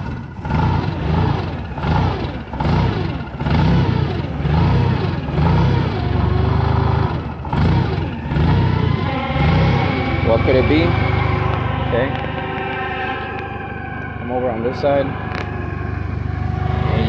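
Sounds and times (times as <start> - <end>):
forklift engine idling rough: 0.0 - 17.0.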